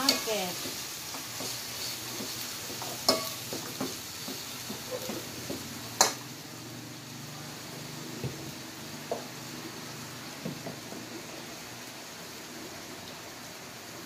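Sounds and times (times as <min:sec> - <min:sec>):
metal spatula scraping a pot: 0:00.0 - 0:03.5
meat sizzling in a pot: 0:00.0 - 0:14.0.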